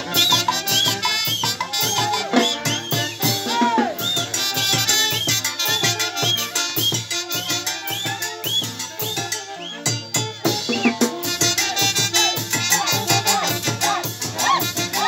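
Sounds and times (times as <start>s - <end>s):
live dance-band music: 0.0s - 15.0s
shaken rattle percussion: 10.7s - 15.0s.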